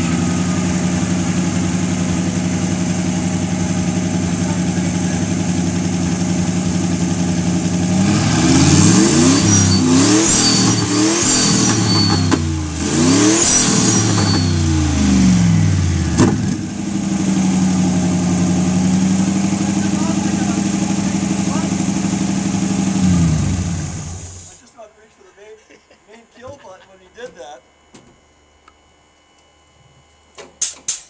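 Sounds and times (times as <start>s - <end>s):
racing engine idling and revving: 0.0s - 24.5s.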